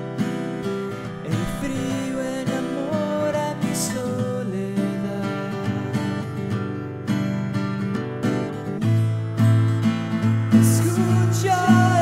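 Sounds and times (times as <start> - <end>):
strummed acoustic guitar: 0.0 - 12.0.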